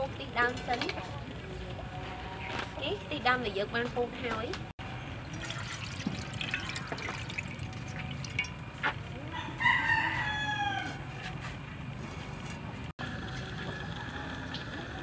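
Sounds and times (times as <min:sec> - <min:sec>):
liquid pouring into frying pan: 0:05.3 - 0:08.7
rooster crowing: 0:09.2 - 0:11.3.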